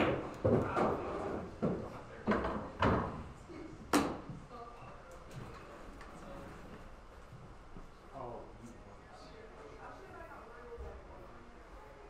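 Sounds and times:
cue tip striking ball: 0:00.0 - 0:01.0
pool balls clacking: 0:00.0 - 0:03.3.

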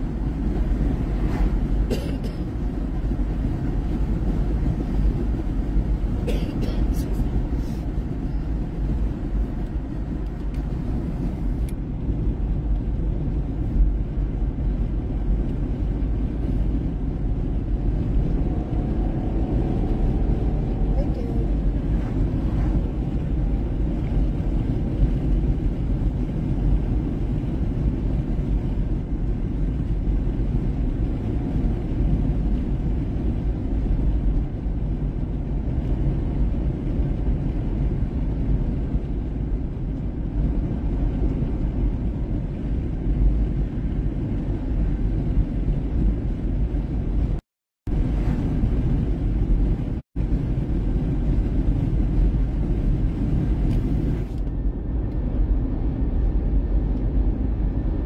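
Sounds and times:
car interior driving rumble: 0:00.0 - 0:58.0.

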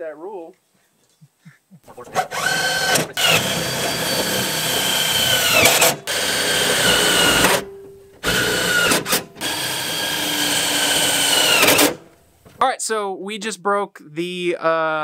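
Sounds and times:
power drill motor whining: 0:02.0 - 0:12.2.

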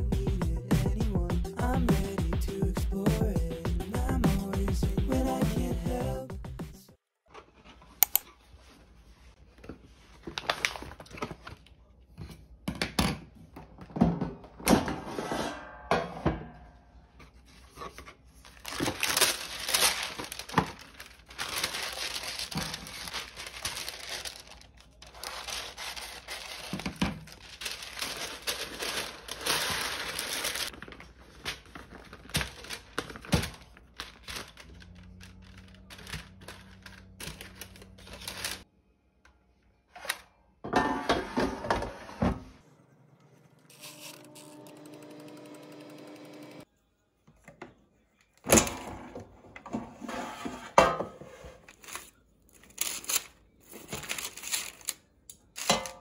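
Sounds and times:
paper rustling: 0:07.5 - 0:11.7, 0:17.3 - 0:38.6, 0:51.6 - 0:55.7
parchment paper tearing and crinkling: 0:18.4 - 0:38.6, 0:43.7 - 0:45.4, 0:51.7 - 0:55.7.

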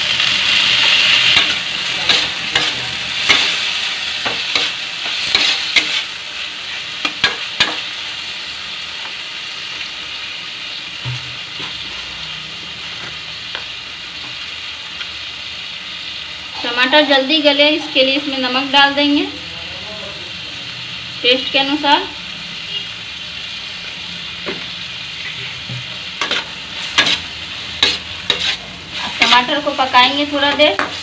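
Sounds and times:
vegetables sizzling in hot oil: 0:00.0 - 0:31.0
spatula scraping a pan: 0:00.6 - 0:07.9, 0:25.2 - 0:31.0.

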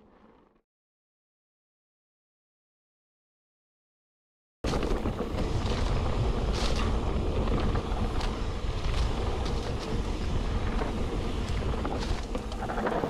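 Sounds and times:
bike clicks and rattles: 0:04.7 - 0:13.0
wind buffeting microphone: 0:04.7 - 0:13.0.

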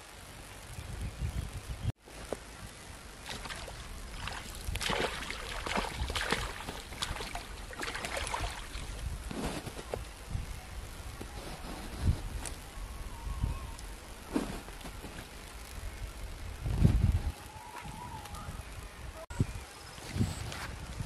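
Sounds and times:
fish thrashing and splashing: 0:03.2 - 0:09.0.

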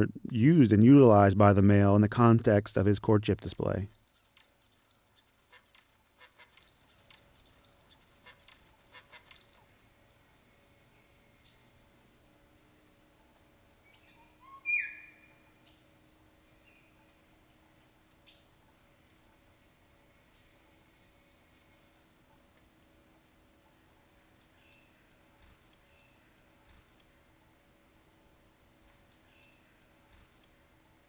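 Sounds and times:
insect chorus: 0:00.0 - 0:31.0
short bird chirps: 0:14.0 - 0:15.3
faint clicks: 0:24.6 - 0:27.1, 0:28.9 - 0:30.6.

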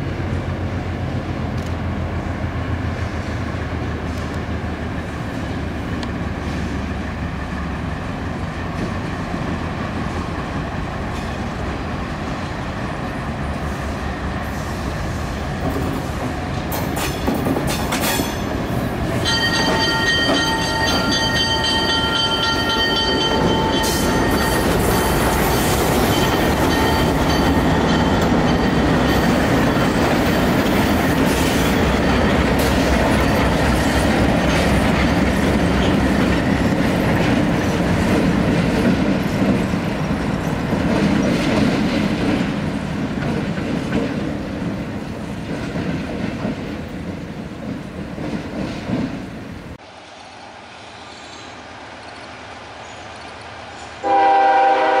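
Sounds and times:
train wheels clickety-clack: 0:08.1 - 0:49.4
train air horn: 0:54.0 - 0:55.0.

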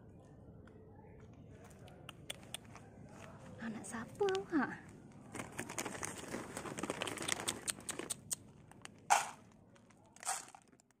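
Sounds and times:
plastic bag crinkling: 0:05.3 - 0:11.0.

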